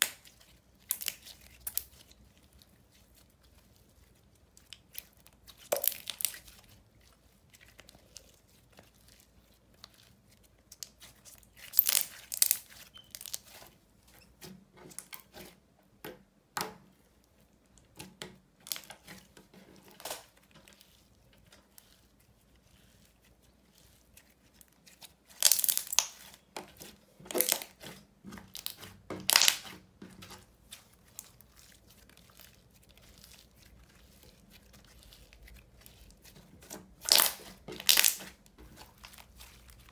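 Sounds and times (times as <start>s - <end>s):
slime squishing and popping: 0.0s - 2.2s, 4.6s - 6.6s, 10.7s - 13.6s, 24.6s - 39.9s.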